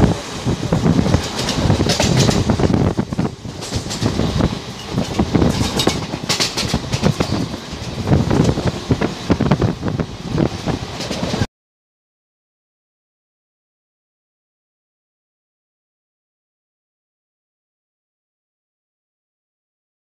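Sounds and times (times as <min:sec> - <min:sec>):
train wheels rumbling on track: 0:00.0 - 0:11.5
wheels clattering over rail joints: 0:00.0 - 0:11.5.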